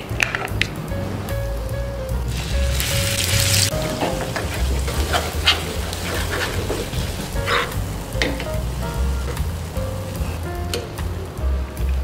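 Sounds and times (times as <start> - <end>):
background music: 0.0 - 12.0
light sizzling: 0.6 - 12.0
metal spoon scraping frying pan: 3.9 - 7.8.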